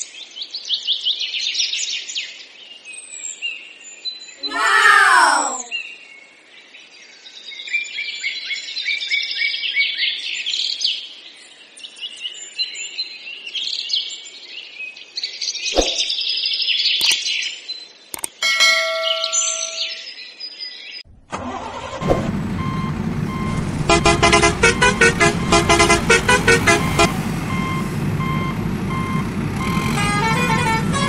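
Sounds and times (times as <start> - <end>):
sharp clicks: 18.2 - 18.4.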